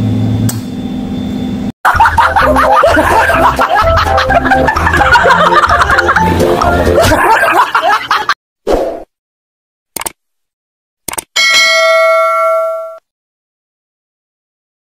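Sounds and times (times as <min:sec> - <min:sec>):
music: 0:01.9 - 0:07.2
mouse clicks: 0:10.0 - 0:10.2
bright bell ding: 0:11.4 - 0:13.0.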